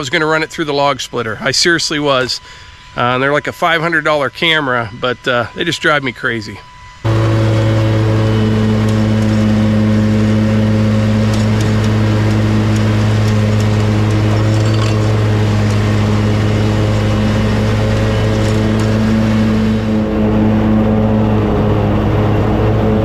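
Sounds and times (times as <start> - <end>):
mower engine drone: 0.0 - 23.0.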